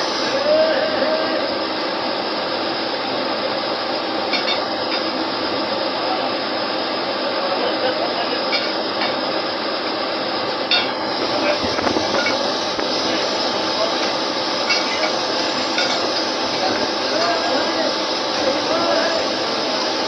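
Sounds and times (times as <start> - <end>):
drilling machinery drone: 0.0 - 20.0
metal clanks: 14.0 - 16.3.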